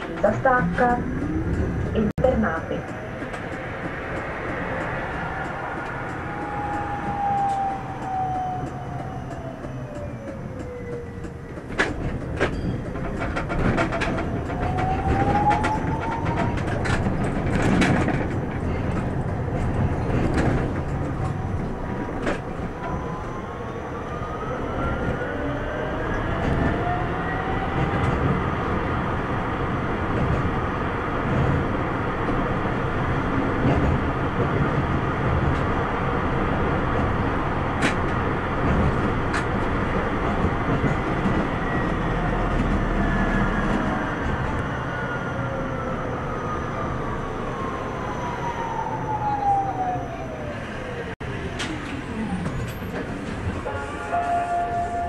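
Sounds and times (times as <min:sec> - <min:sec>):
steady tram rumble: 0:00.0 - 0:55.0
tram traction drive whining: 0:00.0 - 0:55.0
wheels clicking over rail joints: 0:02.8 - 0:23.0.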